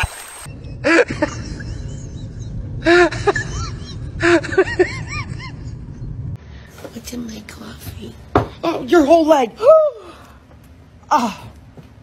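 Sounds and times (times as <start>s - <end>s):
low hum: 0.0s - 6.7s.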